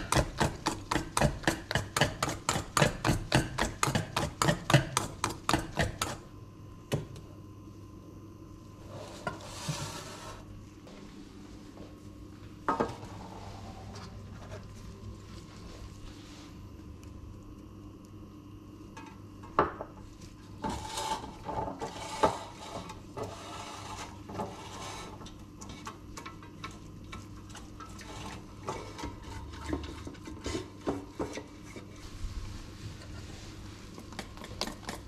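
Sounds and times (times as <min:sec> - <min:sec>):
brush rubbing inside cake pan: 0:20.4 - 0:25.2, 0:27.9 - 0:34.0.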